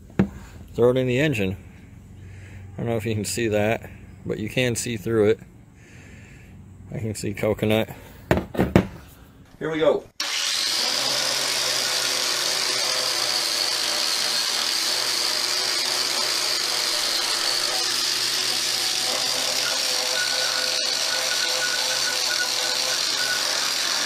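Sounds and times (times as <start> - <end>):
power tool motor whining: 10.2 - 24.0.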